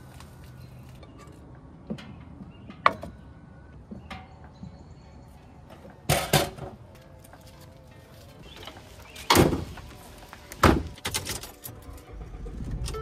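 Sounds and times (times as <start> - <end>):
camp cooking gear clattering: 5.8 - 6.9.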